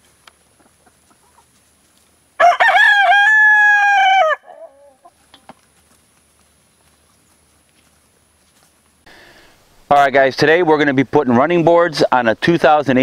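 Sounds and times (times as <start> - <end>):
rooster crowing: 2.4 - 5.1.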